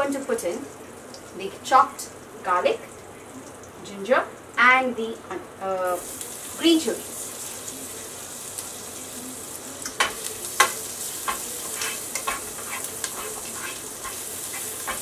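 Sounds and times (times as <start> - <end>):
food sizzling in hot oil: 0.0 - 15.0
spatula scraping a pan: 10.0 - 15.0.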